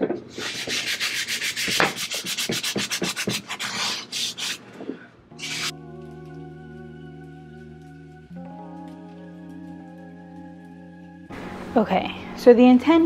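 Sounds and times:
hand sanding wood: 0.3 - 4.6, 5.4 - 5.7
soft background music: 5.2 - 13.0.

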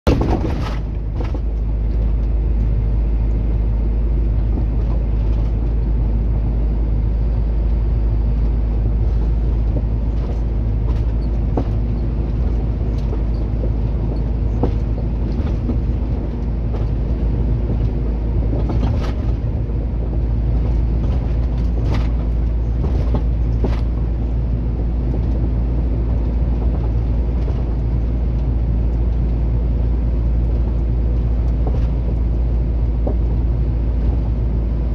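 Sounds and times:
road noise: 0.0 - 34.9
truck engine drone: 0.1 - 34.9.

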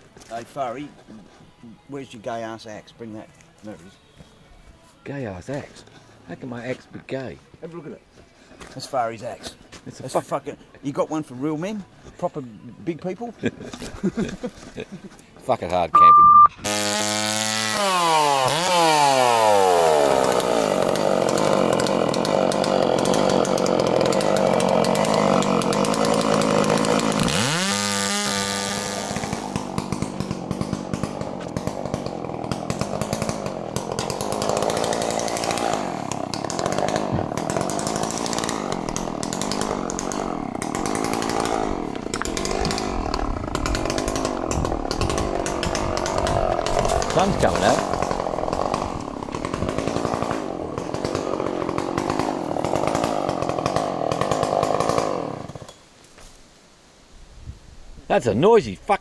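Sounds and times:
chainsaw running: 16.6 - 55.8.

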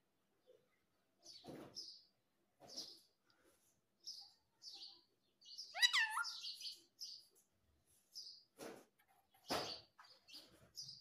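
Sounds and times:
parakeet chirping: 5.5 - 7.1
parakeet harsh chatter: 5.6 - 6.6.

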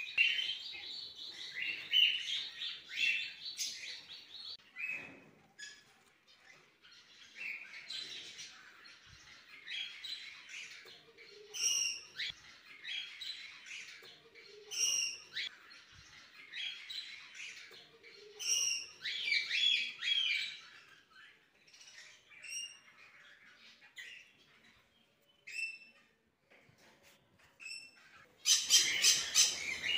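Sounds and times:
finches twittering and chirping: 27.6 - 29.9.

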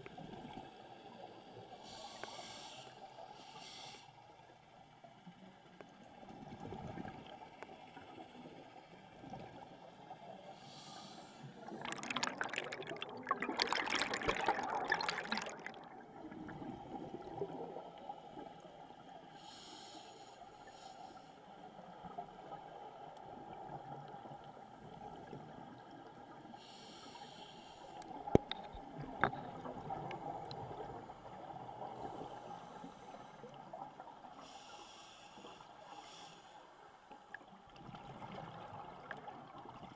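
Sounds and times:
regulator breathing hisses: 1.8 - 4.2, 10.6 - 11.6, 19.4 - 21.4, 26.6 - 28.0, 34.4 - 36.9
underwater exhaled bubbles rushing: 11.6 - 18.5, 28.1 - 32.4, 37.8 - 39.9.

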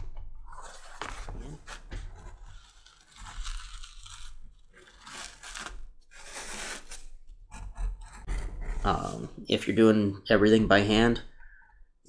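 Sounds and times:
tool scraping leather: 0.5 - 9.4.

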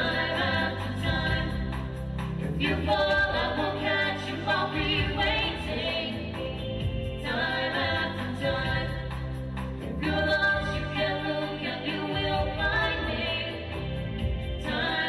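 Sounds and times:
musical accompaniment with beat: 0.0 - 15.0
singers performing pop song: 0.0 - 15.0.

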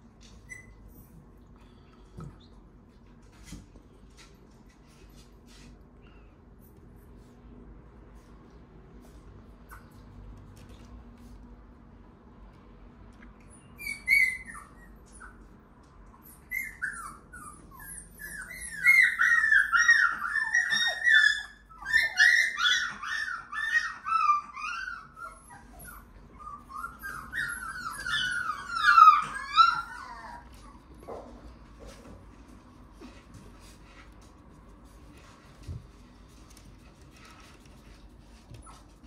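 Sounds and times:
puppy whimpering: 0.2 - 1.2, 13.4 - 31.3.

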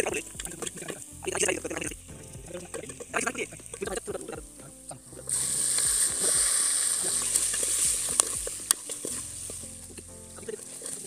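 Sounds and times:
chicken sizzling in hot oil: 5.2 - 11.0.

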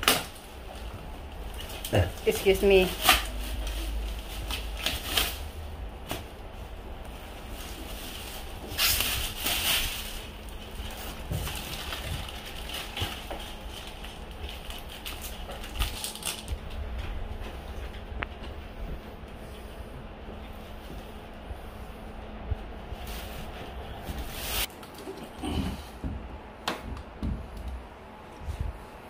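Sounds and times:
plastic bag rustling and crinkling: 0.0 - 17.8, 22.8 - 25.2.

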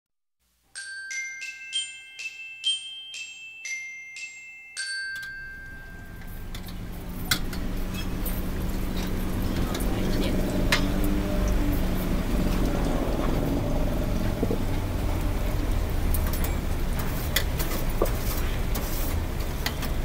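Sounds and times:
glockenspiel jingle: 0.7 - 7.0
street noise: 4.9 - 20.0
low hum: 5.5 - 17.0
deep-frying sizzle: 5.8 - 20.0.

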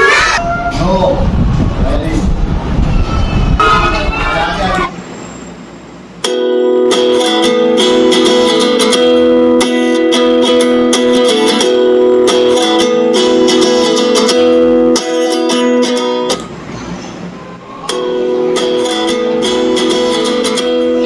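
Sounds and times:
strummed guitar music: 6.2 - 16.6, 17.7 - 21.0.

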